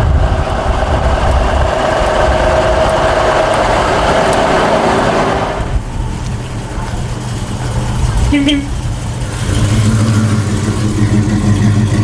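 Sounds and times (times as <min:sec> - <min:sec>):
truck diesel engine driving past: 0:00.0 - 0:12.0.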